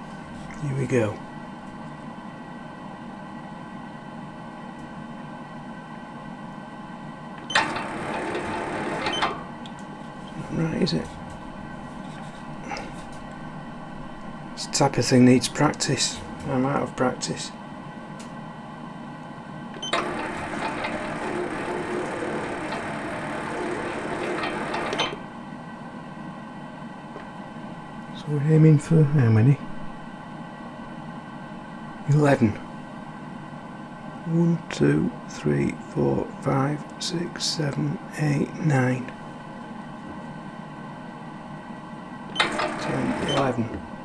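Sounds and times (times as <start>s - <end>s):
lathe humming: 7.4s - 9.6s, 19.8s - 25.3s, 42.3s - 44.0s.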